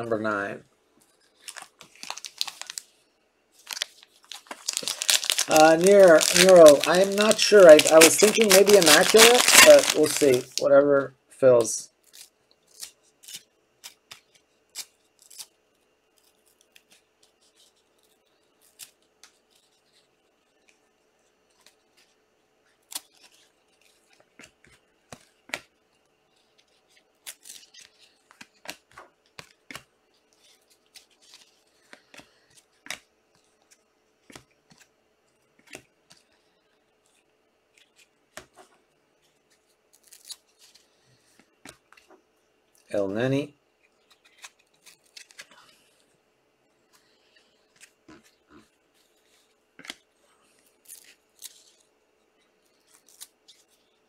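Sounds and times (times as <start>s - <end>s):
faint steady hum: 0.0s - 54.0s
trading cards flipped by hand: 3.6s - 10.6s.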